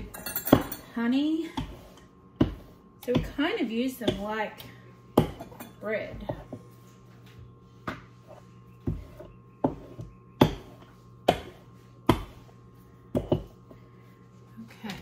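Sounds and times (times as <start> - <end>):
rolling pin knocking on countertop: 13.1 - 13.6.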